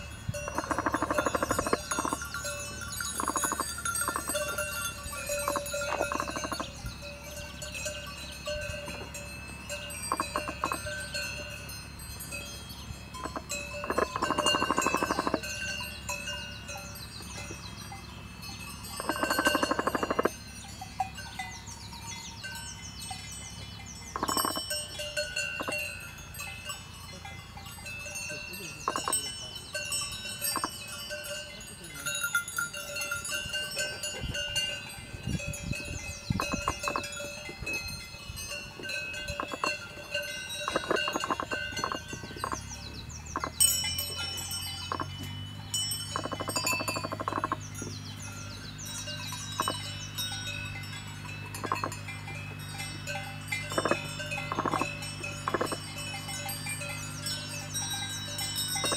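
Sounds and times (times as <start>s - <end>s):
high bird calls: 0.0s - 11.3s, 12.4s - 25.9s, 28.6s - 30.8s, 35.8s - 37.5s, 40.6s - 50.6s, 53.6s - 55.8s
cowbells ringing and clanking: 0.0s - 58.9s
low steady hum: 0.0s - 58.9s.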